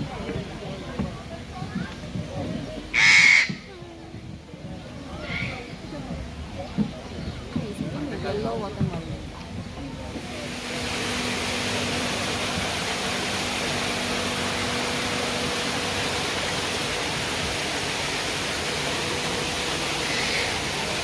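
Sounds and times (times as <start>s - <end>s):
stream flowing over rocks: 9.1s - 21.0s.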